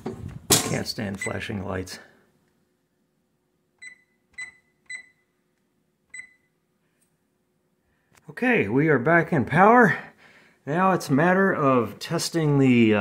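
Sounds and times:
oven control panel beeps: 0:03.8 - 0:05.3, 0:06.1 - 0:06.5.

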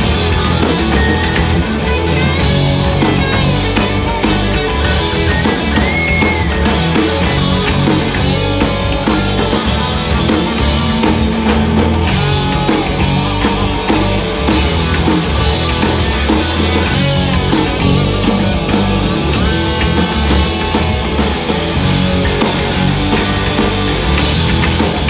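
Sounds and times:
bass guitar: 0:00.0 - 0:25.0
drum kit: 0:00.0 - 0:25.0
electric guitars: 0:00.0 - 0:25.0.

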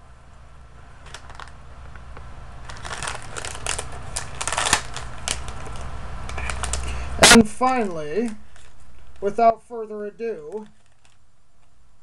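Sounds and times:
plastic packet crinkling: 0:01.0 - 0:01.6, 0:02.6 - 0:09.3, 0:10.4 - 0:11.2.

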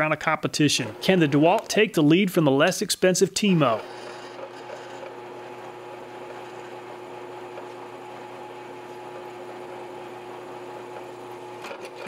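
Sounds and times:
drill press humming: 0:00.8 - 0:01.7, 0:03.5 - 0:12.0
drill bit cutting steel: 0:03.5 - 0:12.0.

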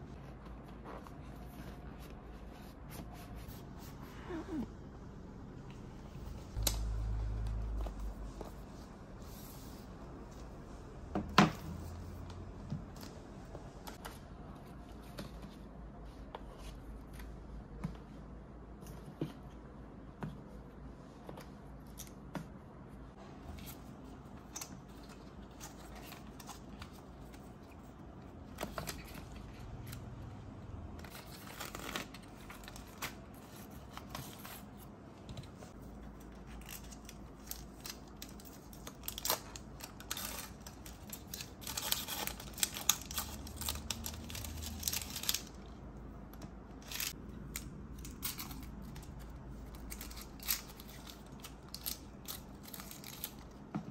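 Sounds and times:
paper packaging rustling and tearing: 0:31.0 - 0:34.9, 0:35.8 - 0:45.8, 0:46.8 - 0:53.7.

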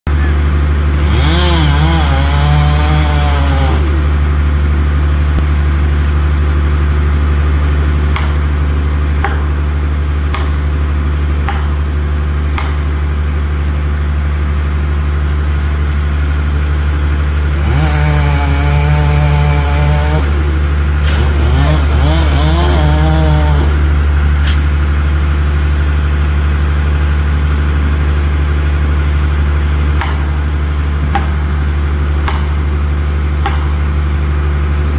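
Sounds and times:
low engine drone: 0:00.1 - 0:34.9
chainsaw revving: 0:00.8 - 0:04.2, 0:17.4 - 0:24.7
sharp knocks: 0:09.2 - 0:09.6, 0:10.3 - 0:10.6, 0:11.4 - 0:11.8, 0:12.5 - 0:12.9, 0:31.1 - 0:31.4, 0:32.2 - 0:32.6, 0:33.4 - 0:33.8.

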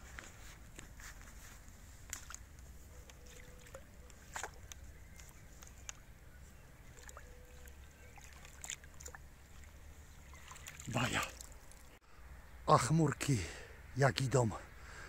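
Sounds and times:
water sloshing and dripping: 0:02.0 - 0:12.0.

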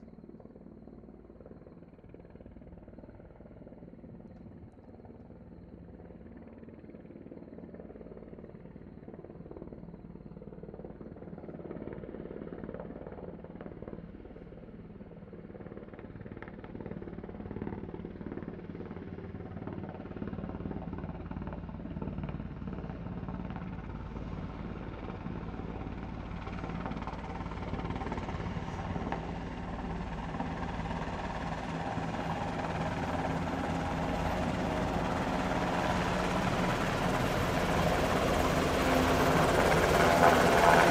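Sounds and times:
helicopter rotor and engine noise: 0:00.0 - 0:40.9.

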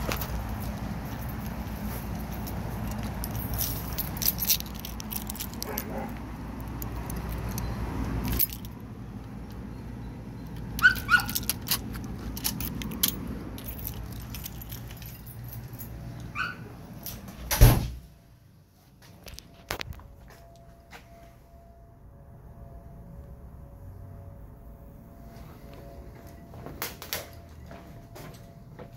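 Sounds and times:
keys jangling: 0:00.0 - 0:08.8, 0:10.4 - 0:17.3
dog yelping: 0:10.8 - 0:11.5, 0:16.3 - 0:16.8.

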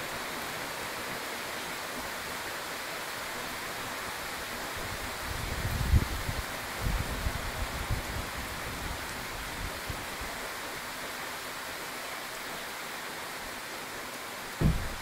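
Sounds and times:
rain on foliage: 0:00.0 - 0:15.0
wind buffeting microphone: 0:05.3 - 0:08.4, 0:14.6 - 0:15.0
low thump: 0:14.6 - 0:15.0.

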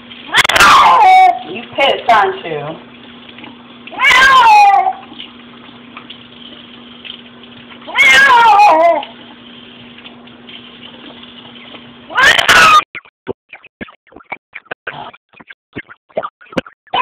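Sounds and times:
cat meowing loudly: 0:00.3 - 0:01.5, 0:03.9 - 0:05.1, 0:07.9 - 0:09.1, 0:12.1 - 0:12.8.

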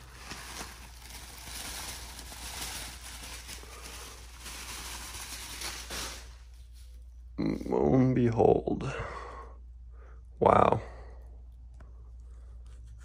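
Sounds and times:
bubble wrap crinkling: 0:00.0 - 0:07.3.

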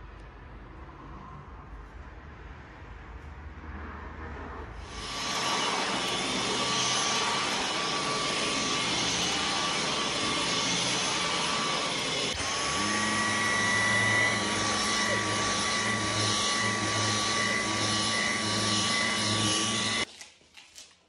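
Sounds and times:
vacuum cleaner motor whining: 0:04.9 - 0:20.1.

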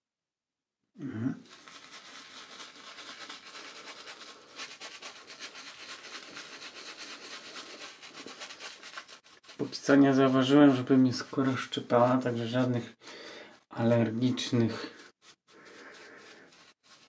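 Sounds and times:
shaving brush rubbing lather: 0:01.4 - 0:17.0.

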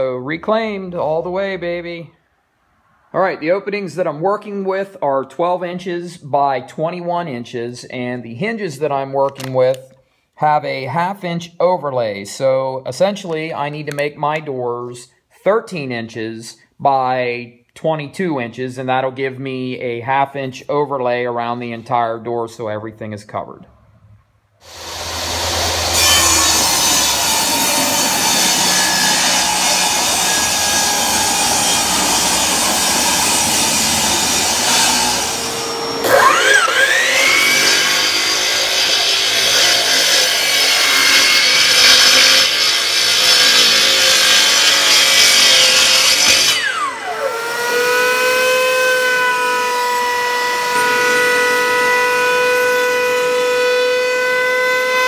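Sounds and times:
motor spinning up with whine: 0:24.6 - 0:28.2, 0:35.1 - 0:37.6
power saw cutting: 0:24.6 - 0:55.0
router whining: 0:24.6 - 0:55.0.

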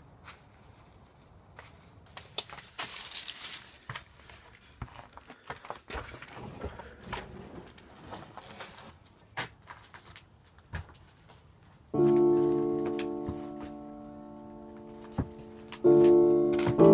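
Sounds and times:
footsteps crunching over debris: 0:00.1 - 0:16.9.

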